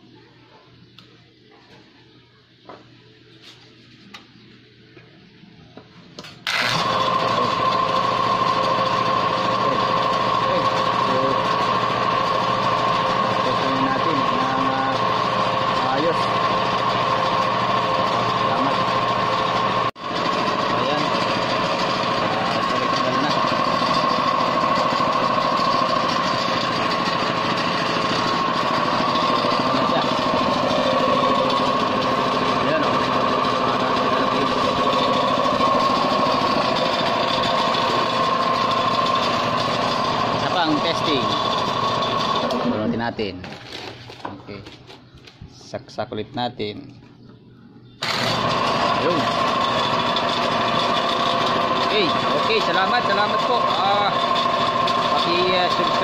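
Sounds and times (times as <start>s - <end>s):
air compressor running: 6.2s - 45.0s, 48.0s - 56.0s.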